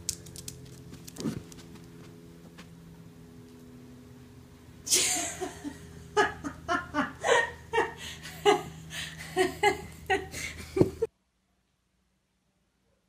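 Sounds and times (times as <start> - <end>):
person laughing: 4.9 - 11.1.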